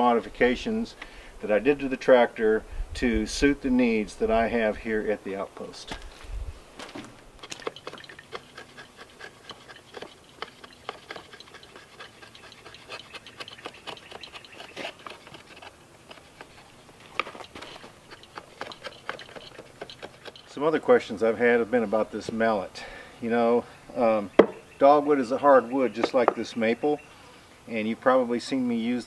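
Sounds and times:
knife cutting wood: 6.8 - 20.5, 24.4 - 24.6.

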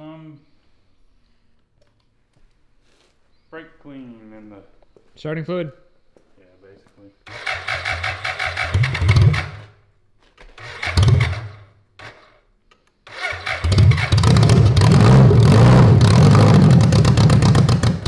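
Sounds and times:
starter motor cranking: 7.3 - 9.6, 10.5 - 12.3, 13.1 - 18.0
motorcycle engine running: 8.7 - 9.6, 10.9 - 11.5, 13.6 - 18.0.

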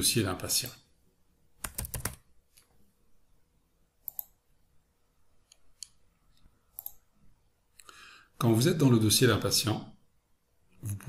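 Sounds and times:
keyboard and mouse clicks: 1.6 - 2.7, 4.0 - 4.4, 5.4 - 7.0.

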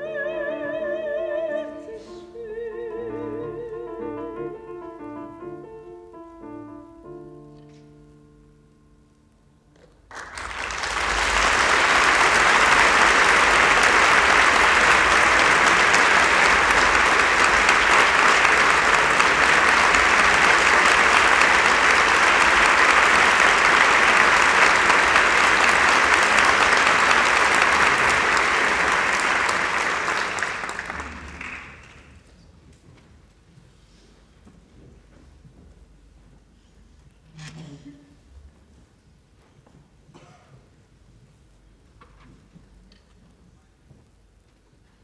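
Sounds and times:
audience applauding: 10.1 - 32.4.

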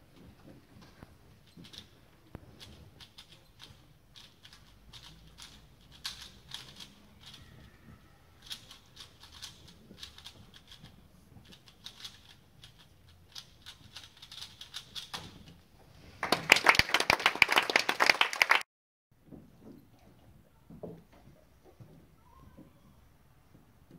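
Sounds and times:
puzzle cube plastic clicking: 2.6 - 7.5.

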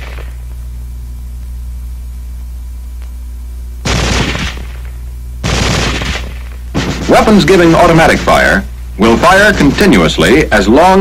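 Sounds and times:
low film soundtrack hum: 0.0 - 11.0
carbine gunshot: 3.8 - 7.4.

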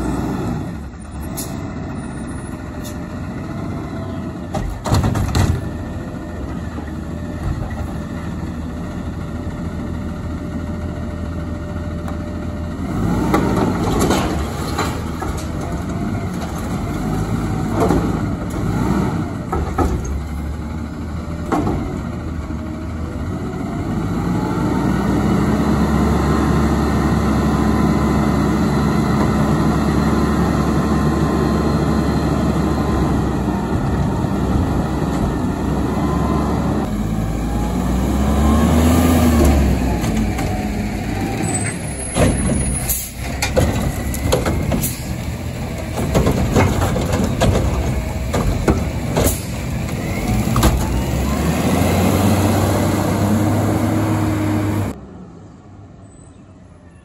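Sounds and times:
truck engine running hard: 0.0 - 55.0
metal clanks and knocks: 4.5 - 5.8, 19.5 - 20.4, 42.1 - 51.0.

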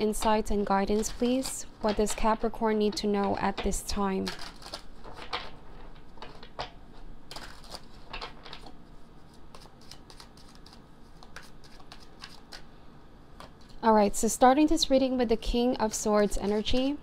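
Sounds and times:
cards being shuffled: 0.2 - 6.7, 7.3 - 12.7.

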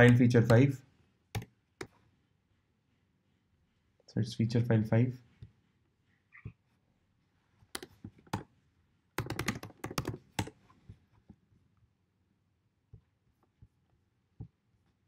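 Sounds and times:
typing on computer keyboard: 7.7 - 8.5, 9.2 - 10.6.

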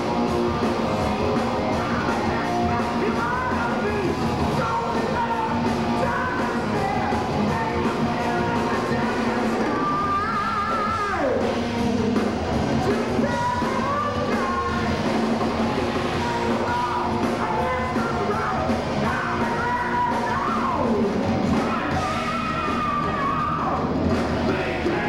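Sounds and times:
heavy metal band playing live: 0.0 - 25.0
lead guitar line: 0.0 - 25.0.

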